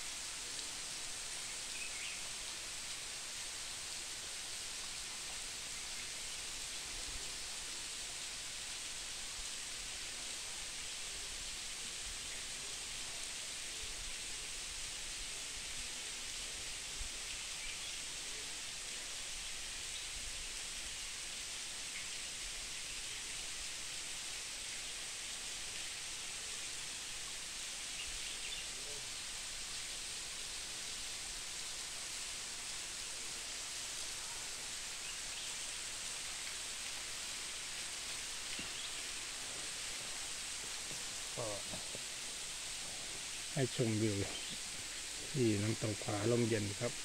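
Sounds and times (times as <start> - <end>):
waterfall hissing: 0.0 - 47.0.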